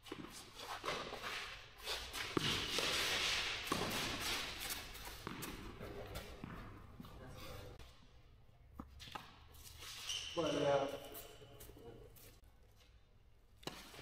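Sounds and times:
racket hitting ball: 2.0s - 6.9s.

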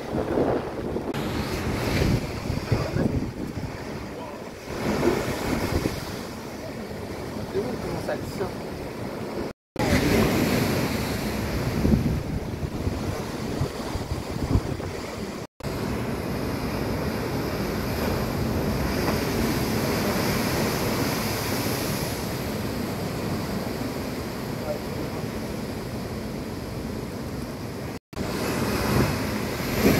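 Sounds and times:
wind buffeting microphone: 0.0s - 15.4s
sea surf surging against wall: 0.0s - 29.9s.

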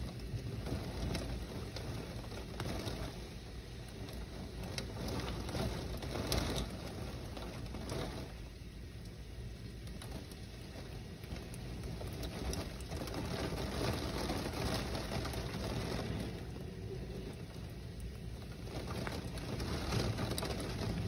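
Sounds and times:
heavy rain in gusty wind: 0.0s - 21.0s
rain tapping on window glass: 0.0s - 21.0s.

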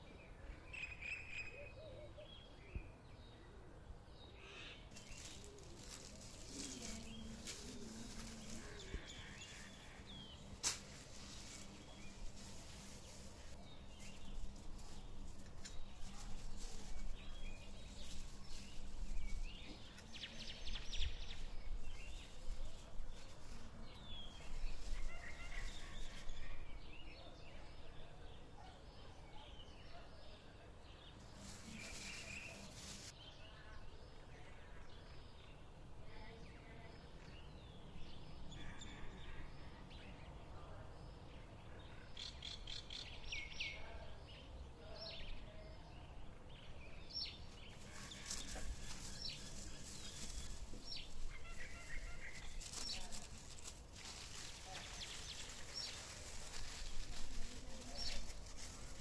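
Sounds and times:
low background noise: 0.0s - 59.0s
birds chirping: 4.4s - 27.2s, 31.1s - 33.1s, 46.5s - 59.0s
spoon scraping on paper: 47.7s - 59.0s.

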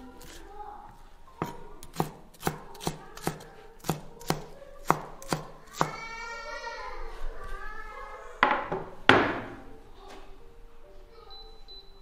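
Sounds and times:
cleaver chopping on wooden board: 1.4s - 6.0s.

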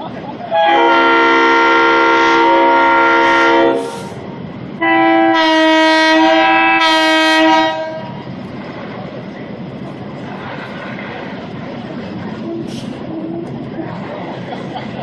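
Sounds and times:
diesel engines rumbling: 0.0s - 15.0s
locomotive air horns: 0.5s - 8.2s.

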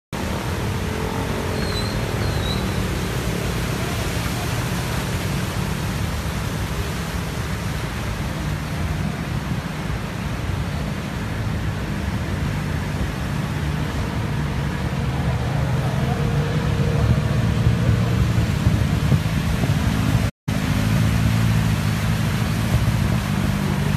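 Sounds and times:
engines rumbling: 0.1s - 23.9s
tyres rushing through water: 0.2s - 23.9s.

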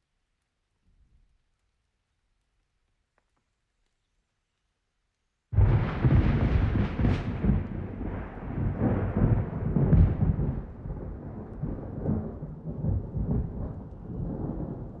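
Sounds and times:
deep rumbling: 5.6s - 15.0s.

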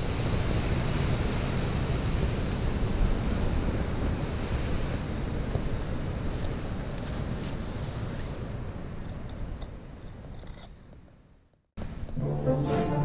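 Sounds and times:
wind buffeting microphone: 0.0s - 10.4s.

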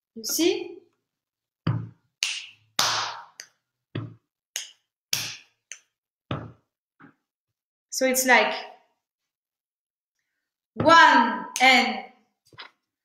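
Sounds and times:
slaps on chest and feet: 1.7s - 6.6s
hand claps: 2.2s - 3.6s, 4.5s - 6.0s
finger snaps: 4.6s - 6.0s.

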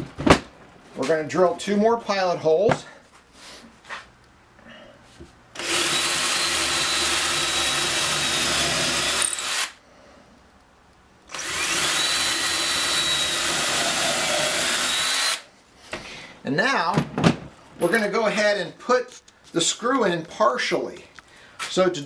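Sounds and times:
electric drill boring wood: 5.6s - 9.8s, 11.3s - 15.4s.

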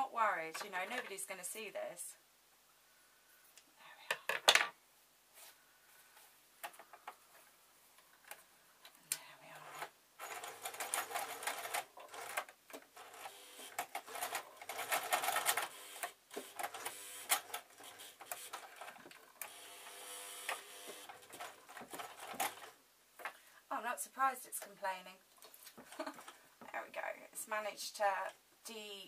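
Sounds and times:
sewing machine stitching: 9.7s - 22.8s.

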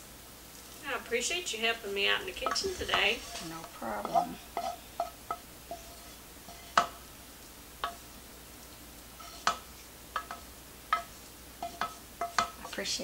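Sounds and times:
wooden spoon knocking a frying pan: 2.0s - 7.1s, 7.8s - 8.1s, 9.2s - 13.0s.

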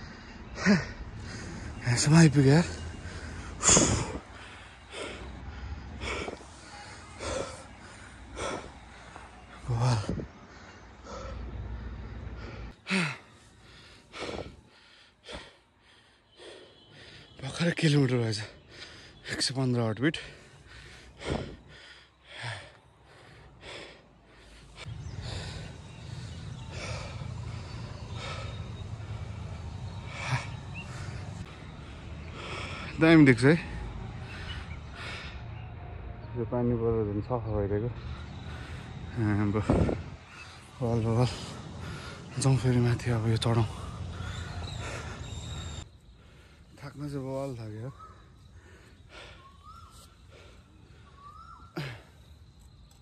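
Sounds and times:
person breathing hard: 2.7s - 17.4s, 20.2s - 33.0s, 38.0s - 42.4s, 43.6s - 46.8s, 47.9s - 53.0s.

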